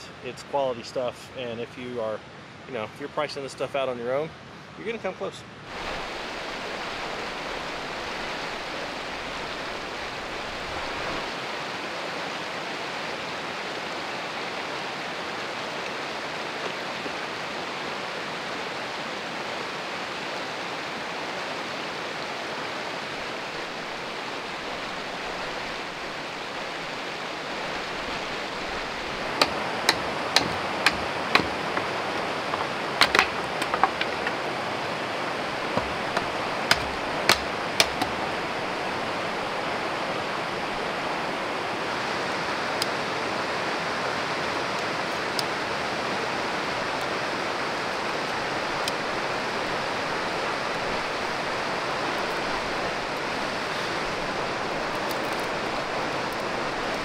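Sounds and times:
river water rushing over rocks: 5.6 - 57.0
hatchet striking a stick: 29.3 - 34.4, 35.8 - 38.2.

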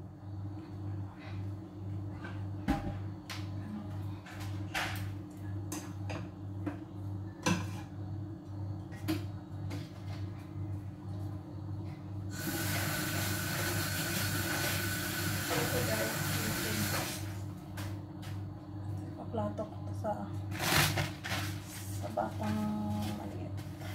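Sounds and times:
tap water running into sink: 12.4 - 17.3.

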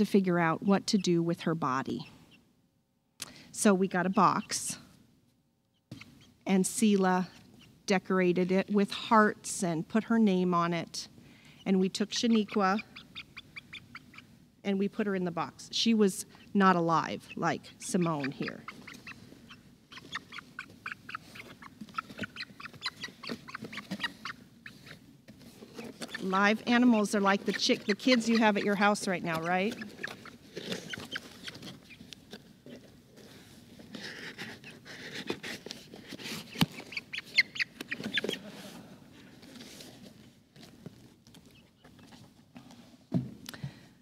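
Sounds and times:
chicken chirping: 12.0 - 14.3, 16.4 - 25.0, 25.8 - 32.1, 36.6 - 38.6
scratching in cardboard box: 33.2 - 37.0.

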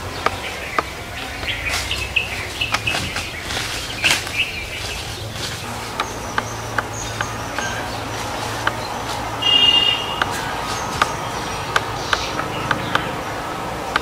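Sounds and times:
leaves and twigs crackling underfoot: 0.0 - 14.0
small birds chirping: 0.0 - 14.0.

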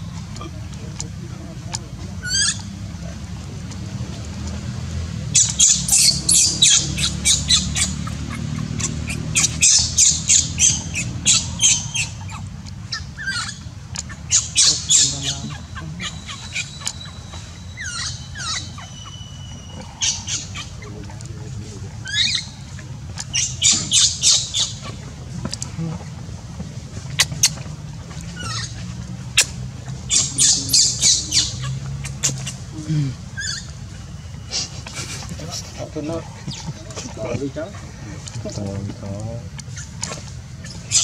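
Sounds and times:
infant monkey squealing: 2.2 - 2.7, 5.4 - 21.0, 21.9 - 25.0, 28.3 - 32.7, 33.3 - 37.8, 39.6 - 41.0.

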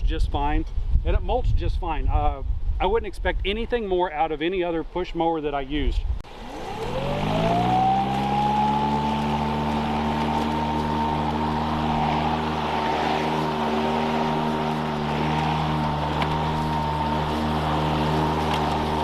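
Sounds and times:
electric motor hum: 6.3 - 19.0
mower blade whine: 6.3 - 19.0.

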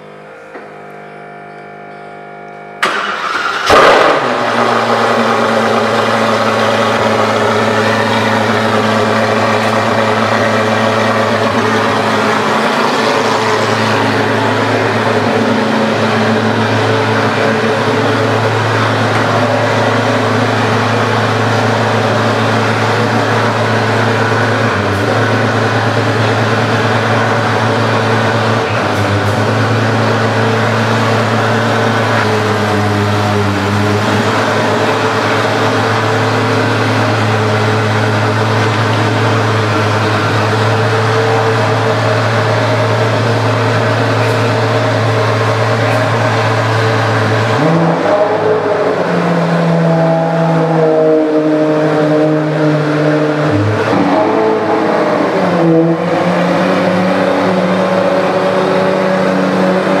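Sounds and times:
car engine starting and idling: 0.0 - 60.0.

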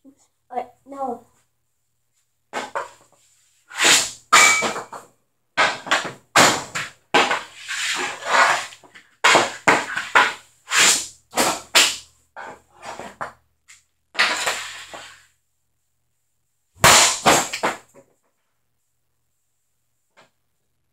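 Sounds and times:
shots striking net and wall: 3.8 - 5.0
hockey stick slapping concrete: 5.6 - 12.0, 16.8 - 17.9.

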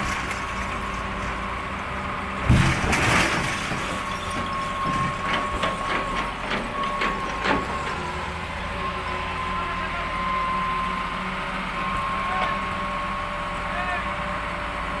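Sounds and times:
diesel engine rumble: 0.0 - 15.0.

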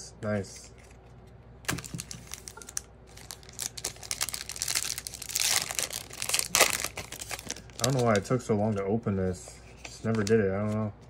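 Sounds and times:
foil wrapper crinkling and tearing: 1.7 - 8.3.

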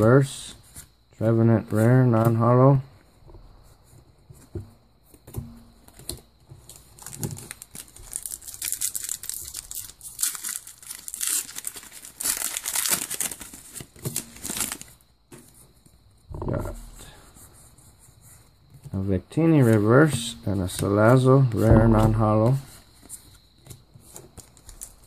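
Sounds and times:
foil wrapper crinkling and tearing: 6.6 - 15.0, 24.2 - 25.0.

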